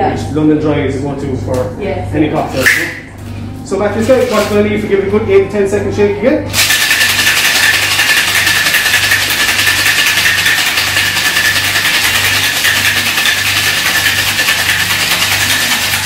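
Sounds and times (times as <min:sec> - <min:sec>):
ice rattling in cocktail shaker: 0:06.5 - 0:16.0.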